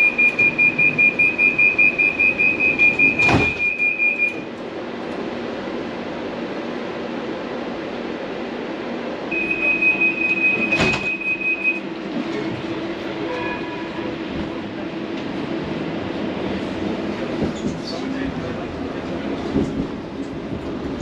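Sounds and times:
high steady beep: 0.0 - 4.4, 9.3 - 11.8
train carriage hum: 0.0 - 21.0.

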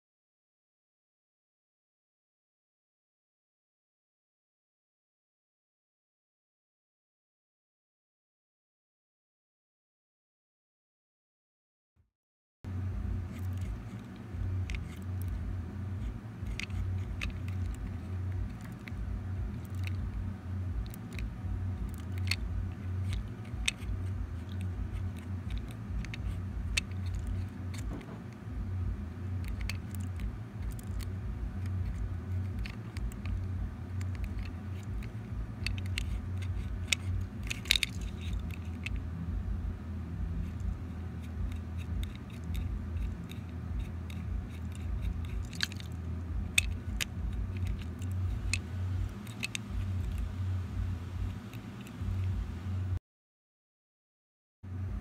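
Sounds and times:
steady low rumble: 12.7 - 53.0, 54.7 - 55.0
small plastic clicks and taps: 20.8 - 28.4.

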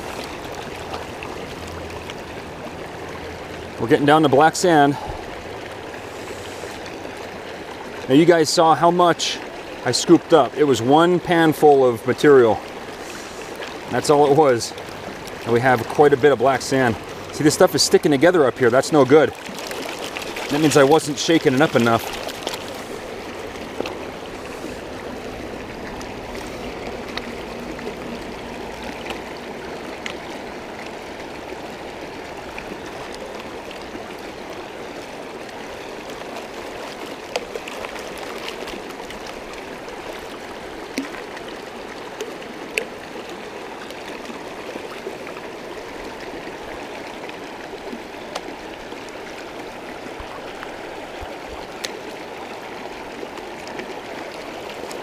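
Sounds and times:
creek running over stones: 0.0 - 55.0
pan sloshing in water: 19.2 - 30.2.

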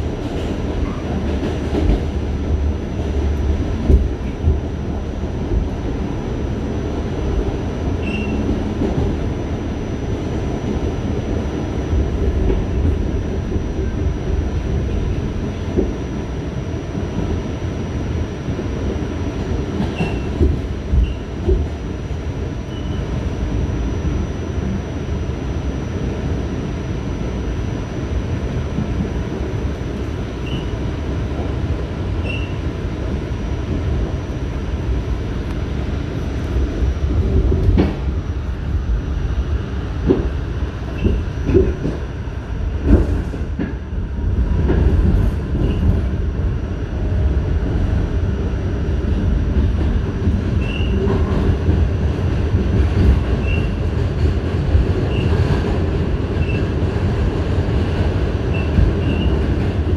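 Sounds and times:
train wheels rumbling on rail: 0.0 - 59.9
faint wheel squeals: 8.0 - 8.4, 32.2 - 32.6.

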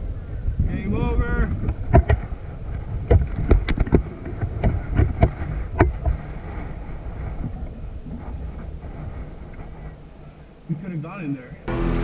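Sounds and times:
wind rumble: 0.0 - 10.7
microphone handling noise: 0.4 - 10.2.

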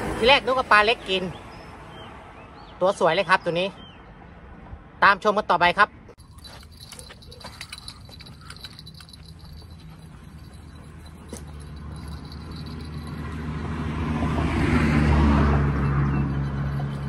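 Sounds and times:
vehicle passing on road: 0.0 - 2.8, 6.4 - 17.0.

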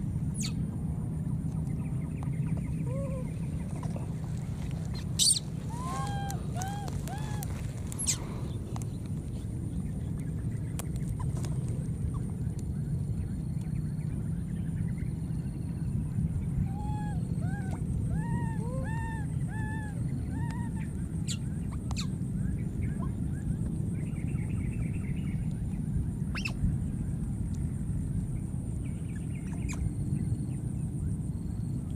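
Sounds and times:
steady low rumble: 0.0 - 31.9
baby monkeys squealing: 5.0 - 8.2.

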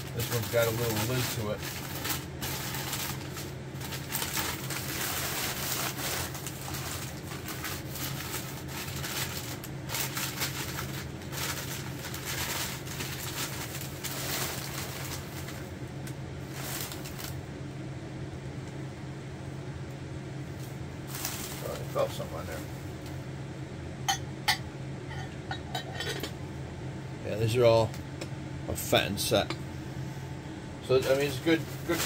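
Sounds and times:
packing paper rustling and crinkling: 0.0 - 17.4, 20.6 - 22.8, 30.9 - 32.0
steady low hum: 0.0 - 32.0.

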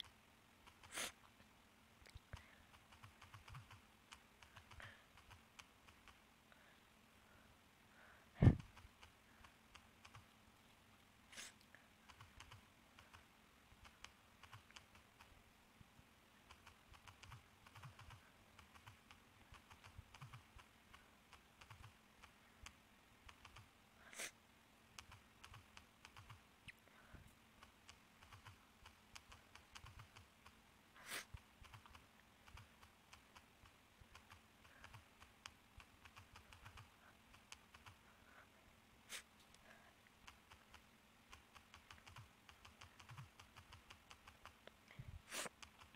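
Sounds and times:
typing clicks: 2.9 - 6.2, 40.3 - 44.6.

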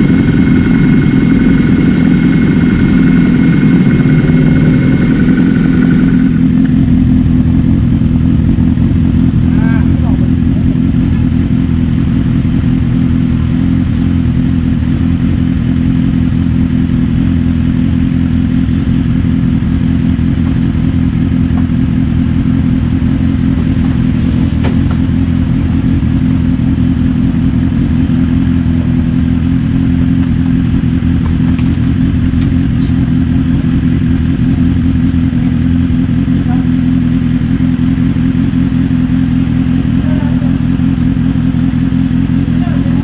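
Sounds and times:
motorcycle engine idling: 0.0 - 43.0.

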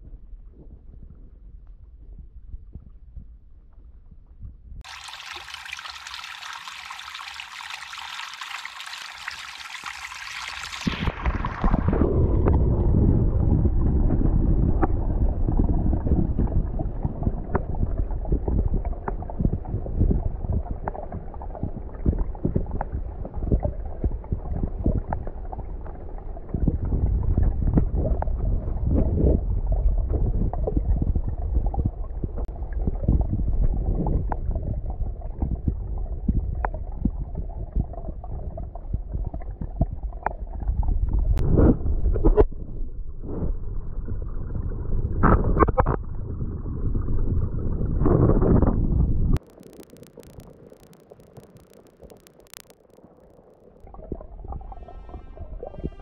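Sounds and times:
underwater rumble with clicks: 0.0 - 56.0
stream trickling over rocks: 4.8 - 12.0, 49.4 - 56.0.

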